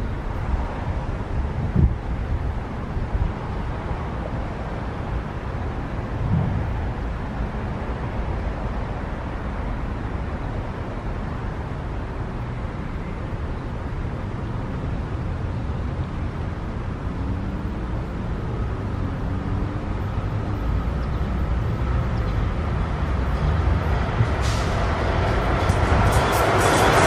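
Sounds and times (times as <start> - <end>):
train rumble: 0.0 - 12.6, 18.0 - 27.0.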